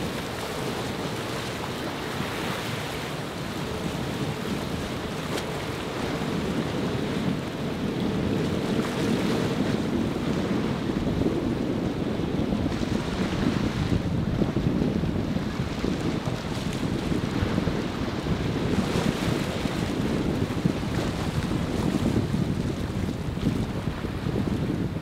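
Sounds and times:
boat engines droning: 0.0s - 12.7s
surf and churning water: 0.0s - 25.0s
wind buffeting microphone: 0.0s - 25.0s.

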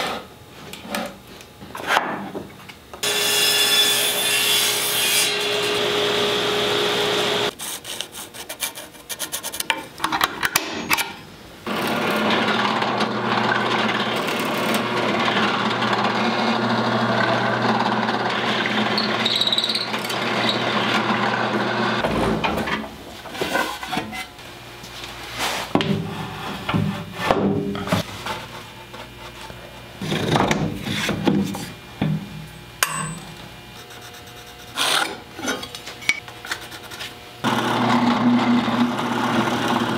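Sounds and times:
table saw cutting wood: 3.0s - 7.6s, 11.7s - 22.4s, 37.4s - 39.9s.

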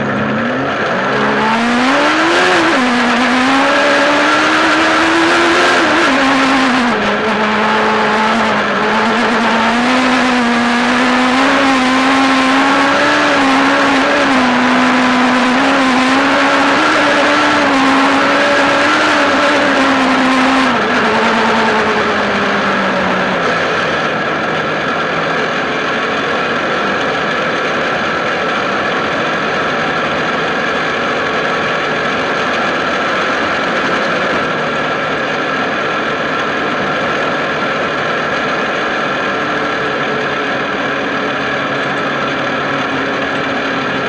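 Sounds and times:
motorcycle engine running: 0.0s - 44.0s.

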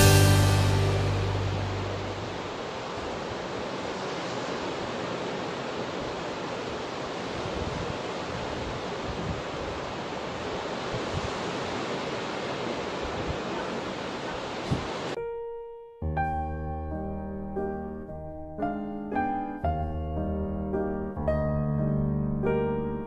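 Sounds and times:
surf washing onto beach: 0.0s - 15.2s
wind rumbling on microphone: 2.0s - 15.2s.

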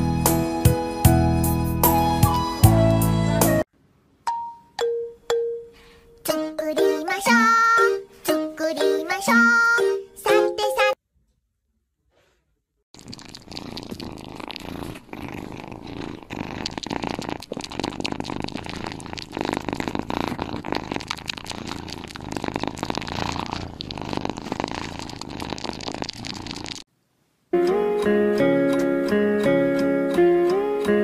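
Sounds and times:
cat purring: 13.0s - 26.9s.

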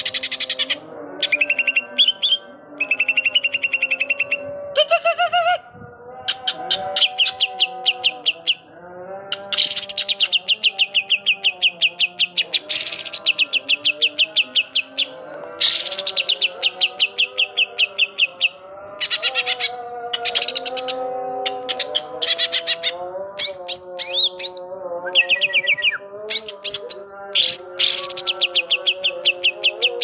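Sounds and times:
bird singing fast trills: 0.0s - 4.5s, 6.3s - 8.7s, 9.3s - 30.0s.

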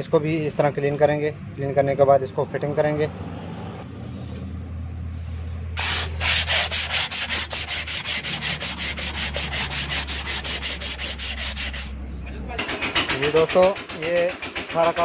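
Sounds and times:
sandpaper rubbing on metal: 5.8s - 11.9s, 13.1s - 15.0s.

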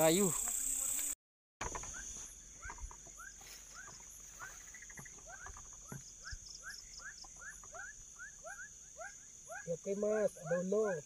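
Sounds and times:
high insect buzz: 0.0s - 11.0s.

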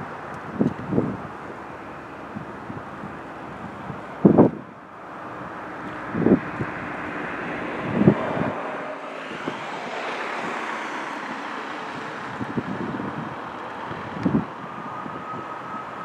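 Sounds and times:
jet engines roaring: 0.0s - 16.0s
wind buffeting microphone: 0.0s - 16.0s.

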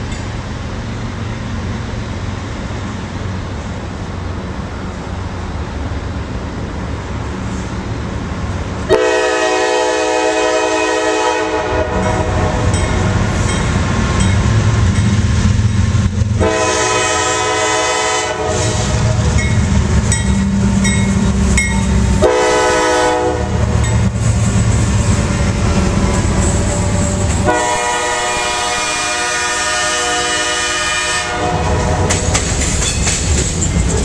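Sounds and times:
diesel engine rumbling: 0.0s - 34.0s
locomotive air horn blasts: 8.9s - 12.7s, 16.4s - 19.1s, 22.1s - 23.7s, 27.4s - 32.2s.

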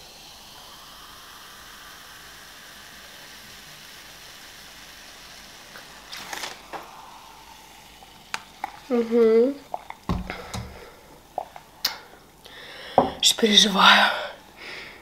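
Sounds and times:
cola pouring into glass: 0.0s - 13.3s
fizzing hiss: 0.0s - 15.0s
person sipping: 0.1s - 13.3s.

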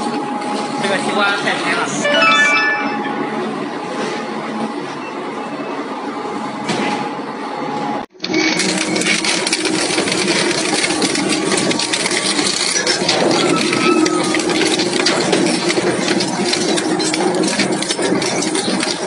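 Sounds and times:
shredder grinding: 8.3s - 19.0s.

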